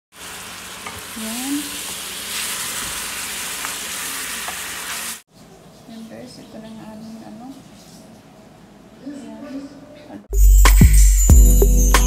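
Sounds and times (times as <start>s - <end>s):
food sizzling in a pan: 0.1s - 5.2s.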